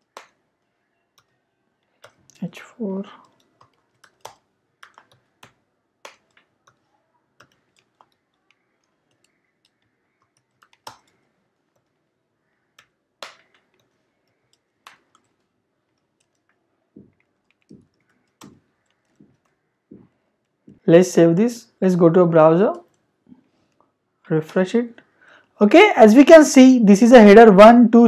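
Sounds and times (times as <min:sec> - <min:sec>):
typing on a keyboard: 0:00.0 - 0:12.1, 0:12.7 - 0:19.6.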